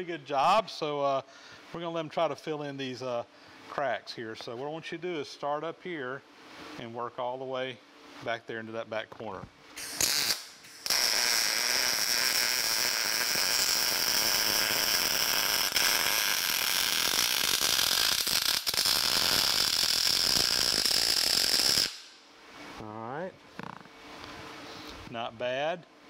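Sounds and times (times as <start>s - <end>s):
arc welding crackling sizzle: 9.8s - 22.2s.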